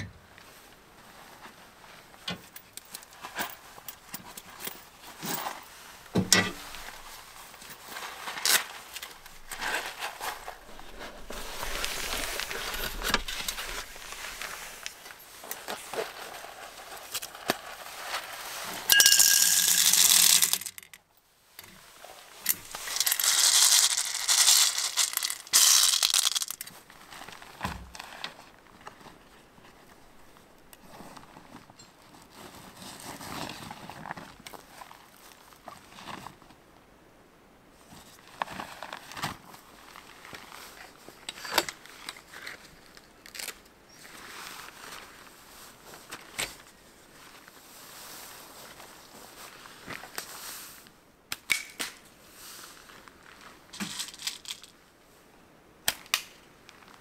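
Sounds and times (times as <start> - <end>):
fabric pouch rustling: 2.9 - 18.9
dry granules pouring into pot: 18.9 - 20.9, 22.7 - 26.6.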